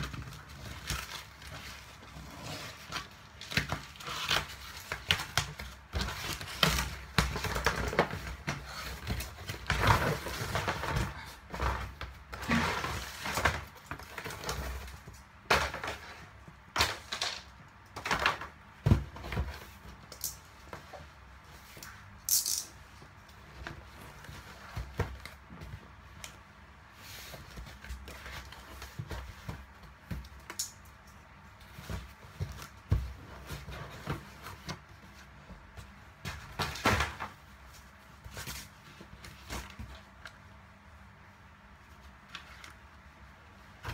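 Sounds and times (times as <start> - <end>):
cardboard ripping and rustling: 0.0 - 15.0.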